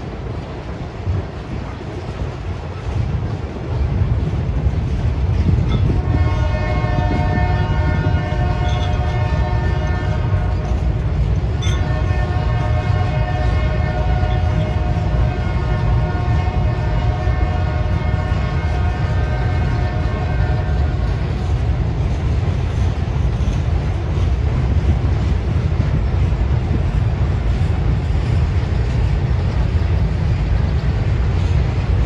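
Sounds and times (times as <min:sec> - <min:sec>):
freight cars rumbling over bridge: 0:00.0 - 0:32.0
locomotive horn: 0:05.7 - 0:11.0, 0:11.6 - 0:23.0.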